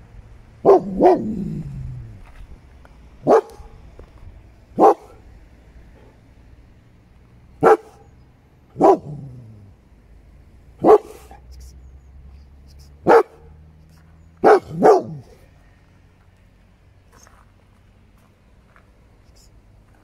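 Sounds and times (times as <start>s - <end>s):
dog barking: 0.6s - 1.4s, 3.2s - 3.8s, 4.8s - 5.2s, 7.6s - 8.1s, 8.8s - 9.5s, 10.8s - 11.4s, 13.0s - 13.5s, 14.4s - 15.4s.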